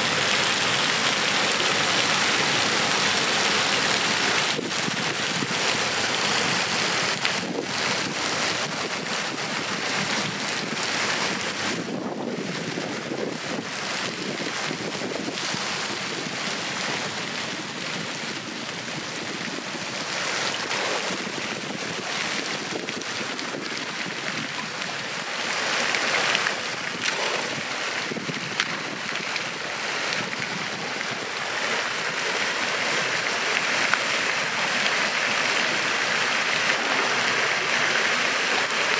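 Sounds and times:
creek water rushing: 0:00.0 - 0:38.9.

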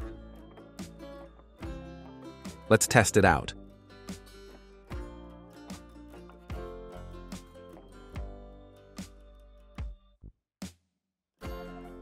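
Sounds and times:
plucked guitar music: 0:00.0 - 0:09.0.

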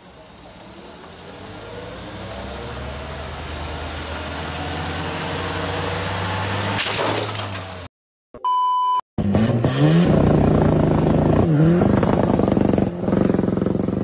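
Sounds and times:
car engine revving: 0:01.2 - 0:06.8, 0:09.2 - 0:14.0.

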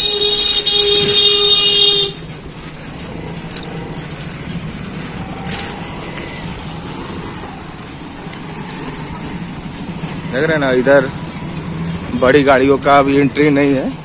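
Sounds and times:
vehicle horn honking: 0:00.0 - 0:02.4
street traffic hum: 0:00.0 - 0:14.0.

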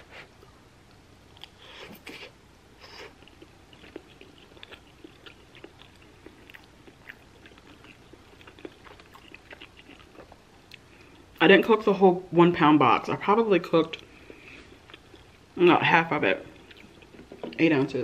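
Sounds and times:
person chewing food: 0:01.3 - 0:11.4, 0:13.8 - 0:15.6, 0:16.4 - 0:17.6.

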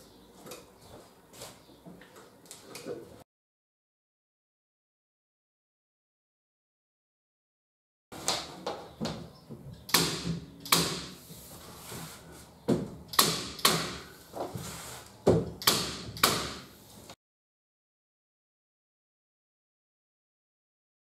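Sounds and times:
staple gun firing: 0:13.1 - 0:14.0.

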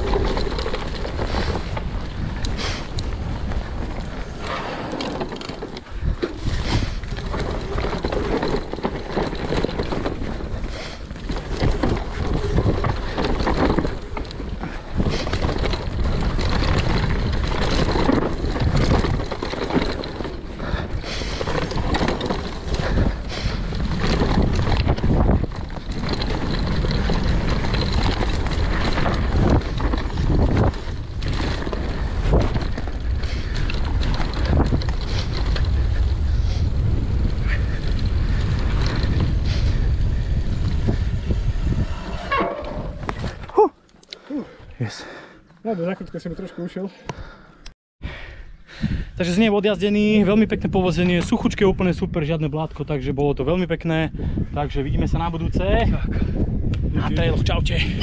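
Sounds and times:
bike knocks and rattles: 0:00.0 - 0:41.4
wind on microphone: 0:00.0 - 0:43.6, 0:48.0 - 0:52.8, 0:53.4 - 0:58.0.

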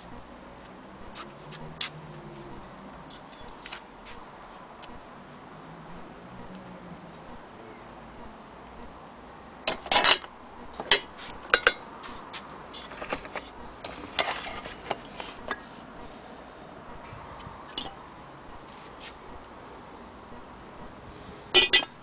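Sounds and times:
metal and glass parts clinking: 0:09.7 - 0:11.8, 0:12.8 - 0:15.8, 0:21.5 - 0:22.0.

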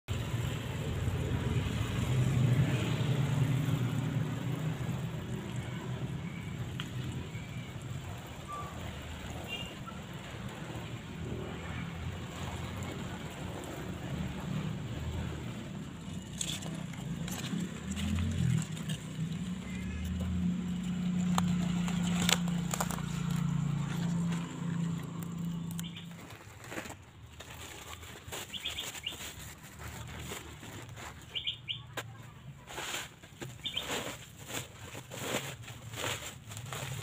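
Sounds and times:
hand rustling leaves: 0:14.2 - 0:37.0.

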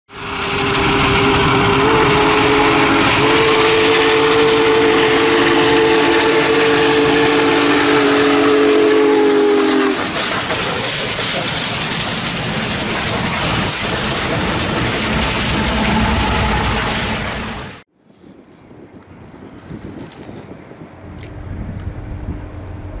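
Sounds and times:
steam locomotive whistle: 0:00.1 - 0:10.7, 0:12.9 - 0:17.6
train rumble and hiss: 0:00.1 - 0:17.8, 0:20.7 - 0:23.0.

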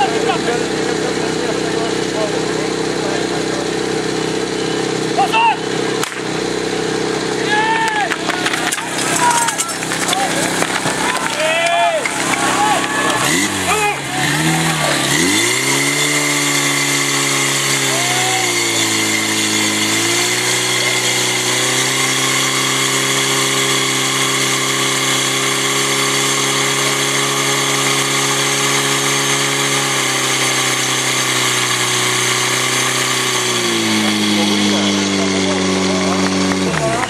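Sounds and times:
fire pump engine running hard: 0:00.0 - 0:37.0.

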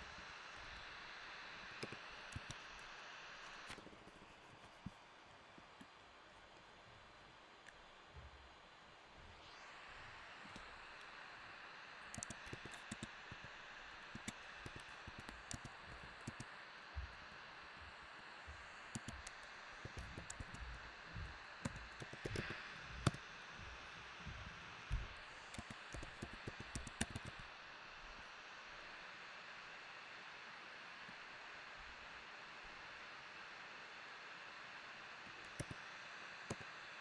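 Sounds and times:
steady faint hiss: 0:00.0 - 0:37.0
keyboard key clicks: 0:12.1 - 0:13.4, 0:14.1 - 0:16.5, 0:18.9 - 0:20.6, 0:21.6 - 0:23.2, 0:25.5 - 0:27.4, 0:35.5 - 0:35.8.

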